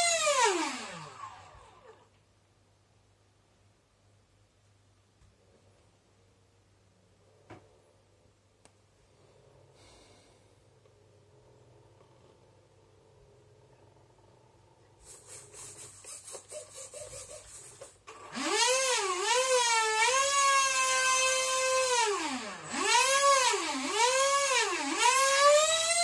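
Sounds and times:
electric ducted fan whining: 0.0 - 2.2, 18.0 - 26.0.

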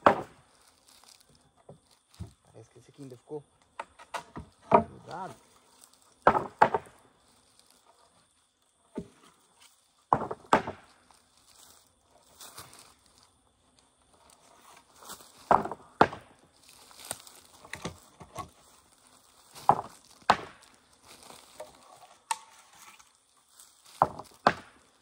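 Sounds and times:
faint scraping and rustling: 0.4 - 25.0.

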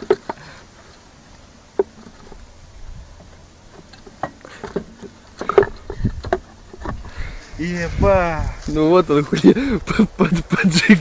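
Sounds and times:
low thumps: 5.5 - 10.0.

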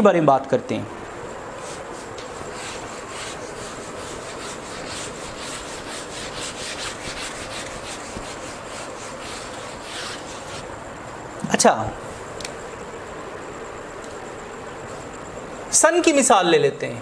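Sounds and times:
eraser rubbing on whiteboard: 1.6 - 10.7.

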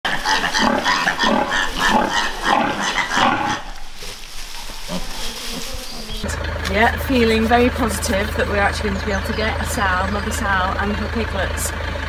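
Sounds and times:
piglets squeaking and grunting: 0.0 - 6.5
rustling in straw: 0.1 - 6.4.

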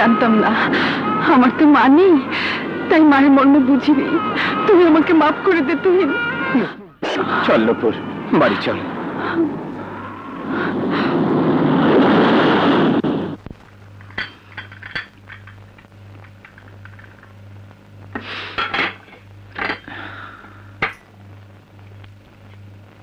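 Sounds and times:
steady low hum: 0.0 - 23.0
heavy rain hissing: 6.6 - 14.6, 15.4 - 19.2, 19.8 - 21.4
china cups clinking: 14.0 - 15.6, 18.6 - 19.9.

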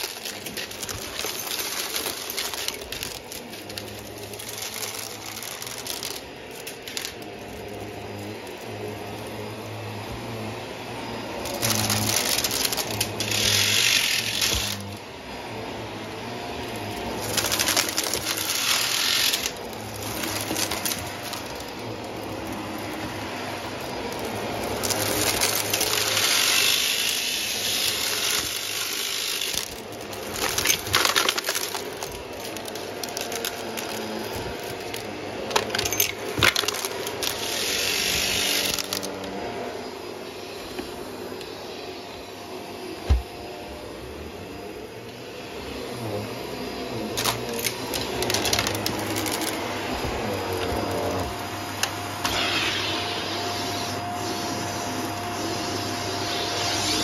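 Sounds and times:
debris rattling in vacuum: 0.0 - 39.7, 45.6 - 57.0
vacuum cleaner motor humming: 0.0 - 57.0
vacuum suction hiss: 36.8 - 57.0.

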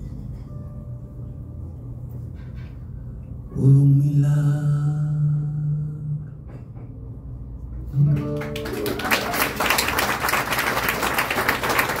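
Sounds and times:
live acoustic song: 7.8 - 9.9
audience applause: 8.1 - 12.0.

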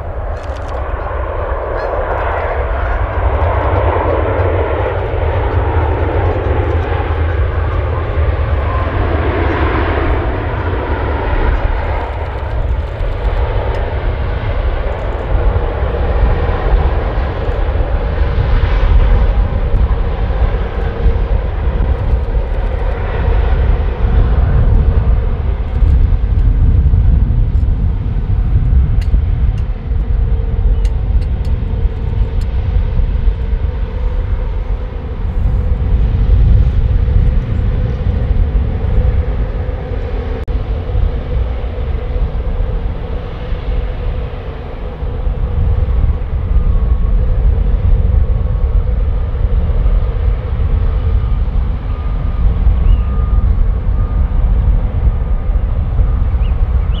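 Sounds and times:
jet engines whining: 0.0 - 57.0.

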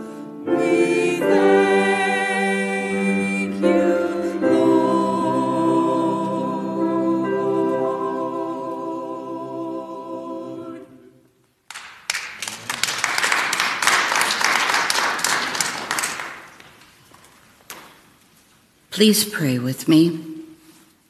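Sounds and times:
choir singing: 0.0 - 11.3
audience applauding: 11.7 - 17.1.

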